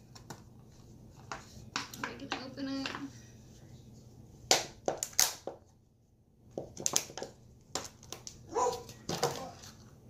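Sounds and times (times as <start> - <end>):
plastic lid crackling and snapping: 4.5 - 5.6, 6.6 - 9.7.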